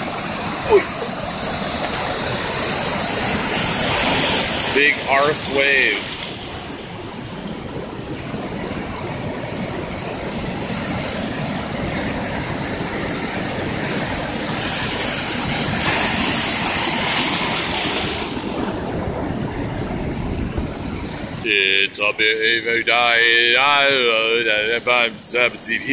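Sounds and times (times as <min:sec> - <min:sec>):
heavy surf breaking on rocks: 0:00.0 - 0:25.9.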